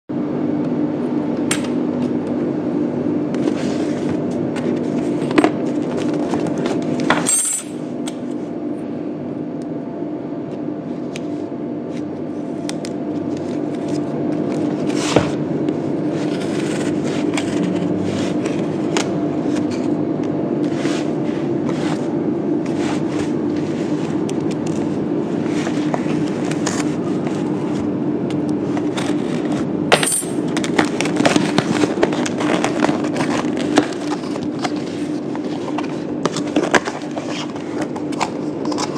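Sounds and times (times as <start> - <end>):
steady hum: 0.1 - 38.9
cardboard parcel scrapes and rustles: 3.4 - 6.8, 16.0 - 19.9, 20.6 - 24.2, 30.8 - 38.9
knife blade scraping packing: 28.8 - 38.9.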